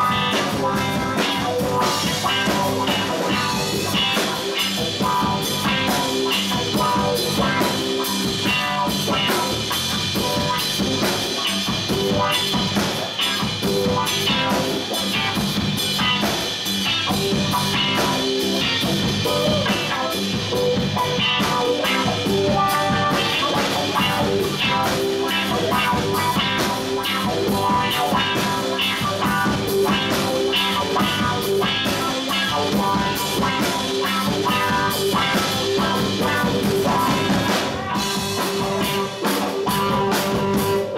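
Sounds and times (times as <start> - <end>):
drum kit beat: 0.0 - 40.9
electric bass guitar: 0.0 - 40.9
electric guitar: 0.0 - 40.9.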